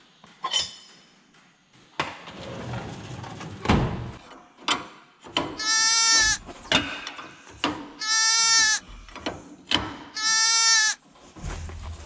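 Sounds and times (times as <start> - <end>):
goat bleating: 5.6 - 6.4, 8.0 - 8.8, 10.2 - 11.0.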